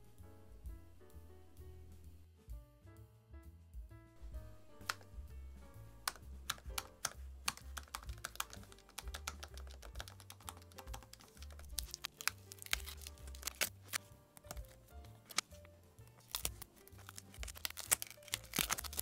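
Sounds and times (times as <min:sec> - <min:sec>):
background music: 0:00.0 - 0:19.0
keyboard keys clicking: 0:06.0 - 0:19.0.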